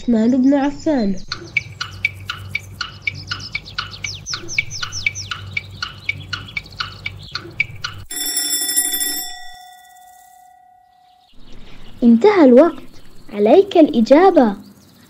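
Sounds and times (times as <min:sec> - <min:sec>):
falling timer chirps: 0:01.3 - 0:11.3
alarm clock bell ringing: 0:08.1 - 0:11.4.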